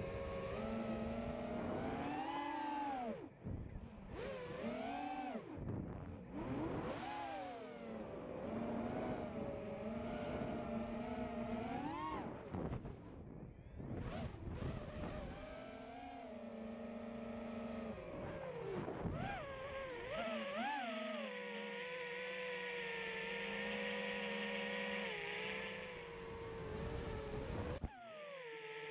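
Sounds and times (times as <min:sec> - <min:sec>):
quadcopter motors whining: 0:00.0 - 0:28.9.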